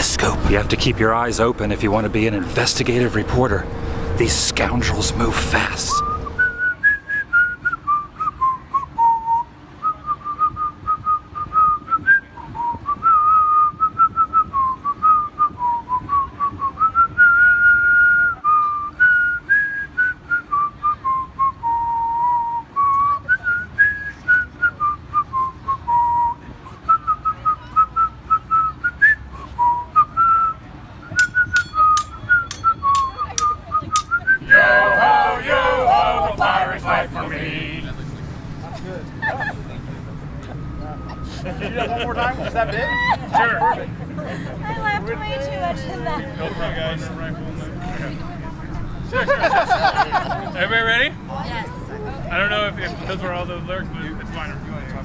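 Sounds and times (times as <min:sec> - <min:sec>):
person whistling a tune: 0:06.0 - 0:35.7.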